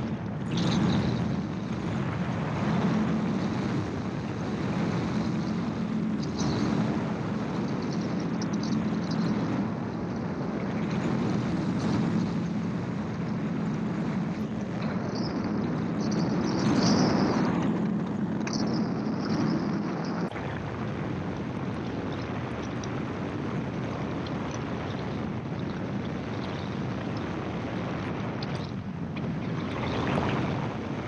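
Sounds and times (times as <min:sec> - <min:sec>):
gyroplane engine and propeller: 0:00.0 - 0:31.0
wind noise: 0:00.0 - 0:31.0.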